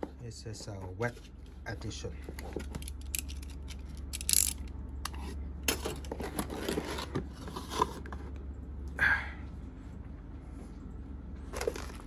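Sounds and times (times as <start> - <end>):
plastic parts being handled: 2.2 - 8.0.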